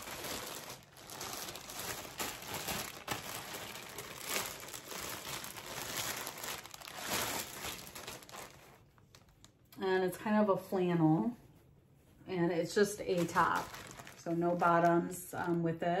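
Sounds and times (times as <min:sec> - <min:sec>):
plastic bag crinkling: 0:00.0 - 0:09.7, 0:12.8 - 0:15.8.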